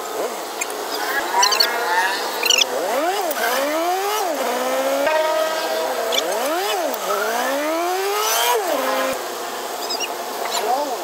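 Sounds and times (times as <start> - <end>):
engine accelerating and shifting gears: 0.8 - 9.5.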